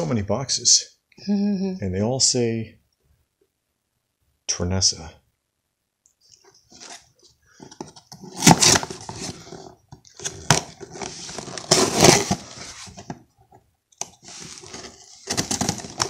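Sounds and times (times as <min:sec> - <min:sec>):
packing rustling and scraping: 0:06.7 - 0:13.2, 0:14.1 - 0:16.0
cardboard box tearing: 0:08.2 - 0:09.6, 0:10.2 - 0:13.1, 0:14.2 - 0:16.0.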